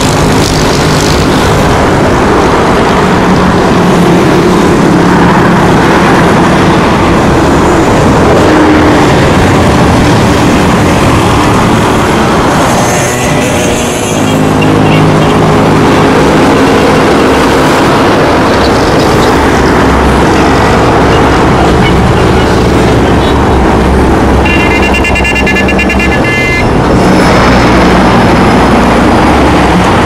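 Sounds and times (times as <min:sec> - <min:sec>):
highway traffic noise: 0:00.0 - 0:30.0
vehicle horn: 0:24.4 - 0:26.7.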